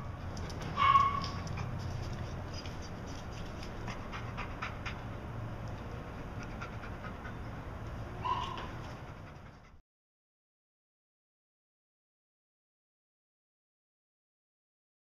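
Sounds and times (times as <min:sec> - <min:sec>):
dog panting: 0:00.3 - 0:09.8
dog yelp: 0:00.7 - 0:01.8, 0:08.2 - 0:08.8.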